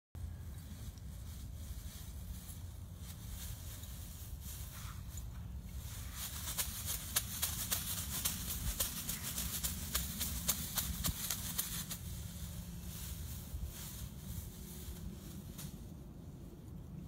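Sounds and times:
low rumble: 8.0 - 17.0.

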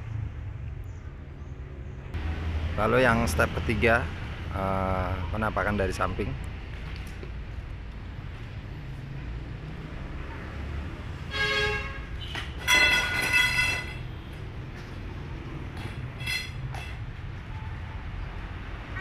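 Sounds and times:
vehicle horn honking: 11.3 - 14.0.

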